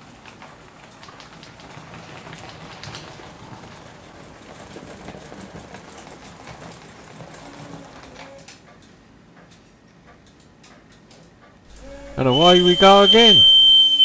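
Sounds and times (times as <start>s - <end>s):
rapid mechanical rattle: 0.0s - 8.4s
model steam locomotive hissing: 11.7s - 14.0s.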